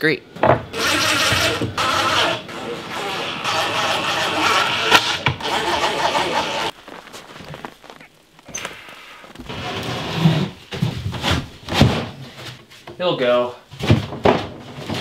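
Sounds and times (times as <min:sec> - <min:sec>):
knocks and thumps: 0:00.4 - 0:00.7, 0:13.8 - 0:15.0
cordless drill driving screws: 0:00.8 - 0:06.7.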